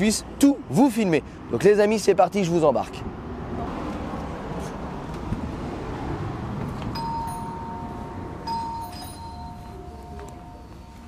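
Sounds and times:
steady high tones: 7.0 - 11.0.

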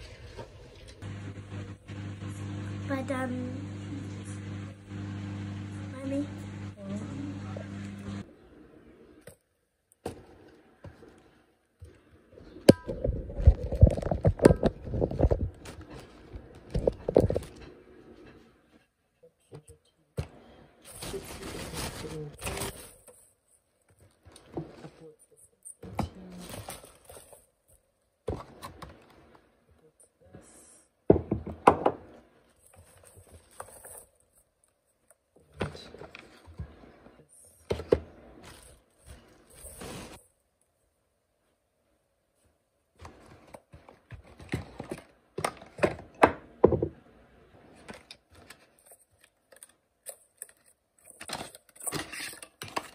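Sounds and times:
objects knocking on wooden table: 31.1 - 32.0, 45.8 - 47.0.

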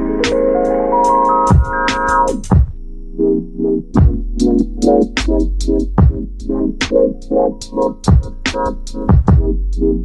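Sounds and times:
kick drum: 1.5 - 1.9, 2.5 - 2.8, 4.0 - 4.3, 6.0 - 6.4, 8.1 - 8.5, 9.1 - 9.6.

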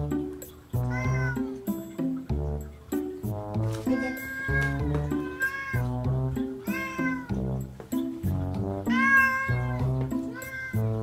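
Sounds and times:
background music: 0.0 - 11.0
cat meowing: 0.8 - 1.6, 3.8 - 7.4, 8.9 - 11.0.

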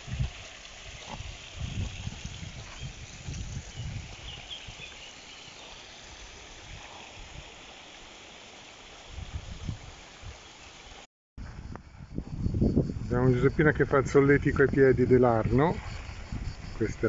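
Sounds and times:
fountain water splashing: 0.0 - 11.0.

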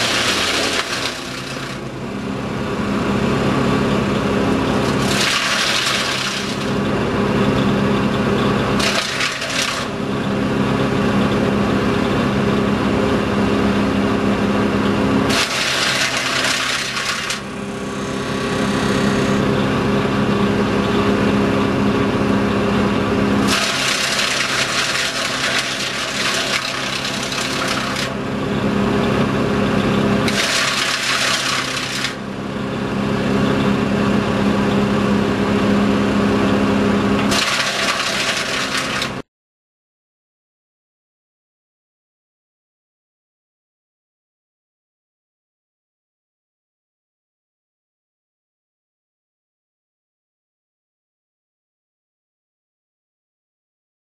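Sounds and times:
branches shredding and rattling: 0.0 - 1.8, 4.8 - 6.8, 8.8 - 10.0, 15.3 - 17.5, 23.4 - 28.2, 30.3 - 32.2, 37.3 - 39.2
wood chipper engine running: 0.0 - 39.2.

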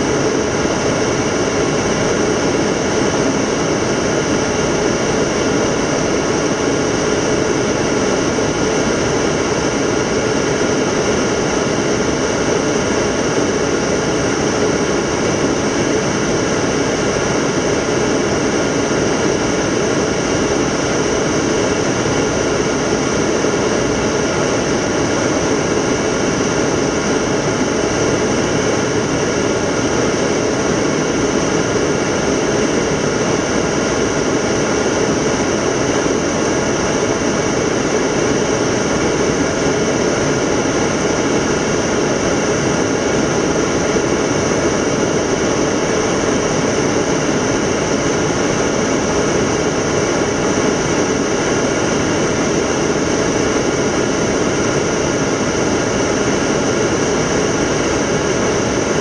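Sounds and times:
faint steady whines: 0.0 - 59.0
jet engines running in cockpit: 0.0 - 59.0.

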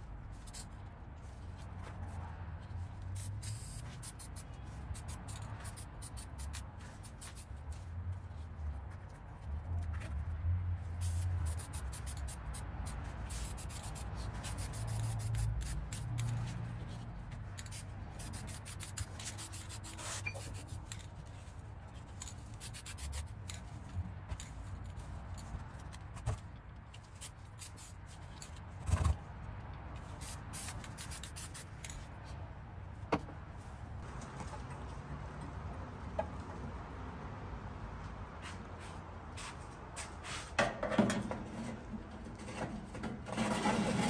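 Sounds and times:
aerosol spray paint spraying: 0.4 - 0.7, 3.2 - 7.5, 11.0 - 16.4, 17.6 - 21.0, 22.6 - 23.3, 27.2 - 28.0, 30.2 - 31.8.

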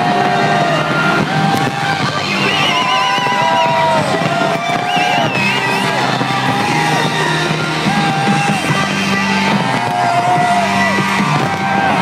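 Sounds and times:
music over sound system: 0.0 - 12.0.

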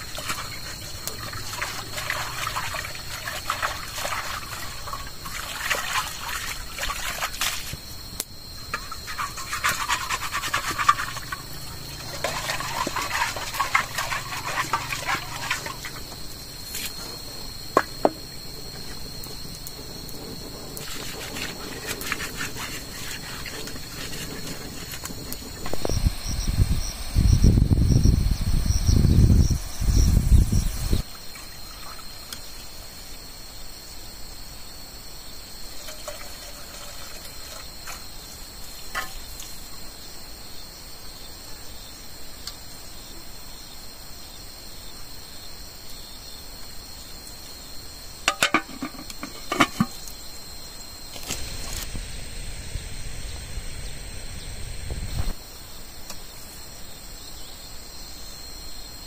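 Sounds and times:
insects chirring: 0.0 - 59.0
wind on microphone: 19.8 - 31.0, 51.4 - 55.4
metal pot clinking: 48.3 - 50.0.

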